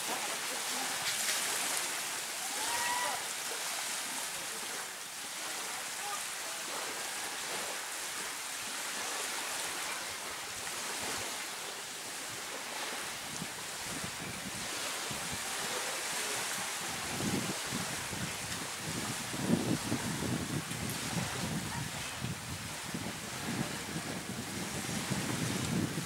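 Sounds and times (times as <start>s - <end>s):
small waves breaking on sand: 0.0s - 26.0s
wind on microphone: 12.1s - 26.0s.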